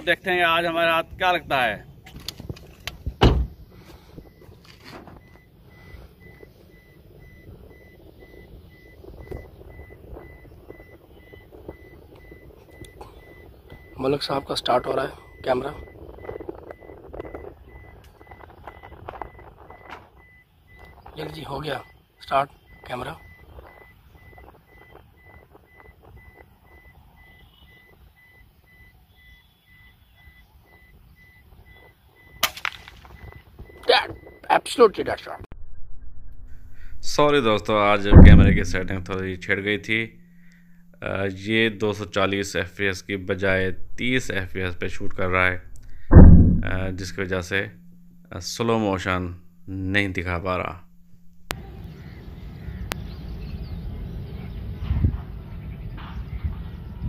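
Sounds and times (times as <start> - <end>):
wind rumble: 0.0 - 21.4, 22.5 - 28.8, 35.5 - 57.0
high electronic beeping: 5.2 - 32.4, 37.2 - 52.2
air rifle firing: 46.1 - 46.9.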